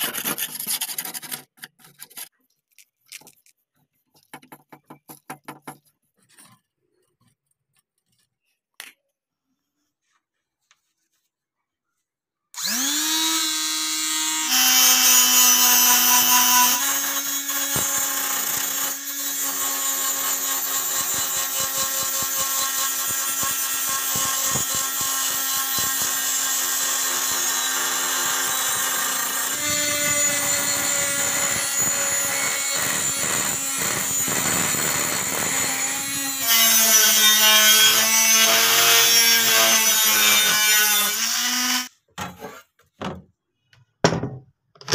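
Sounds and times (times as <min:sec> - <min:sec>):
die grinder whine: 0:12.6 - 0:41.9.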